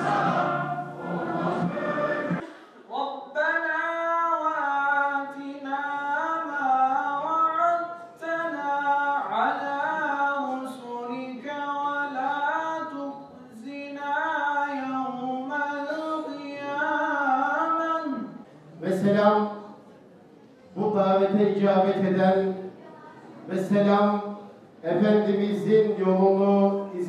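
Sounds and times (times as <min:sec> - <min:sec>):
man singing unaccompanied: 0:03.0 - 0:18.4, 0:23.6 - 0:27.0.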